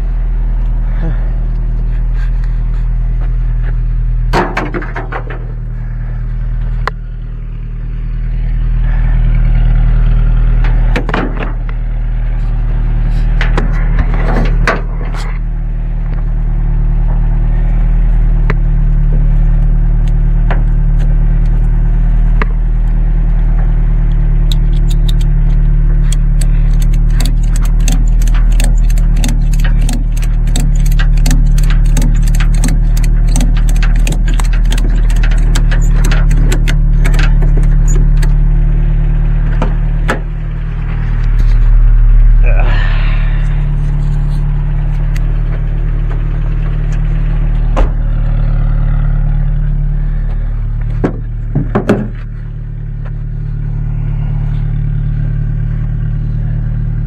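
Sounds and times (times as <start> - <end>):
vehicle engine idling: 0.0 - 57.0
loud knocks and rattles: 4.3 - 5.6, 10.7 - 11.7, 26.8 - 38.4, 50.9 - 52.2
ratchet strap clicking: 24.5 - 25.3, 26.0 - 38.4.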